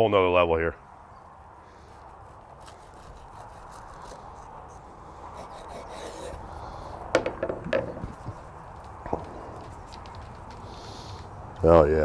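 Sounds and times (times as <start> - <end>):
knife sawing through bread: 1.8 - 6.8.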